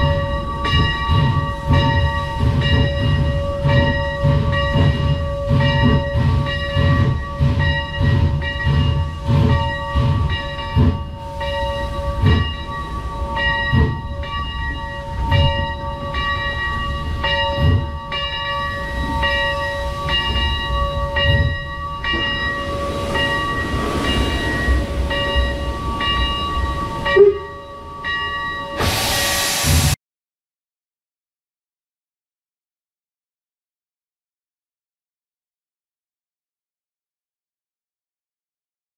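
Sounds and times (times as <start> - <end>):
high ringing whine: 0.0 - 29.5
steam locomotive rhythmic thuds: 0.0 - 30.0.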